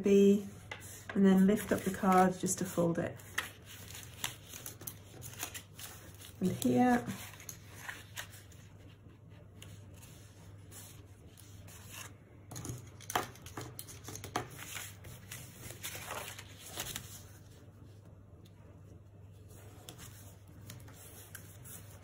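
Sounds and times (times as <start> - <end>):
card crackling as it folds: 1.6 - 9.0, 12.8 - 17.6
card rustling: 10.8 - 17.5.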